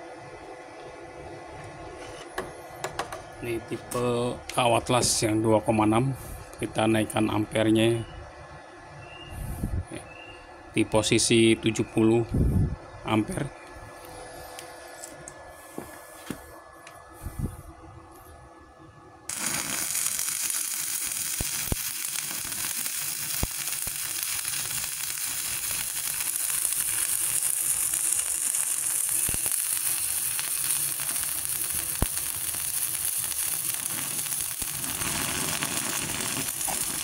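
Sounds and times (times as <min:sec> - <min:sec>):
welding arc crackling: 0:19.3 - 0:37.0.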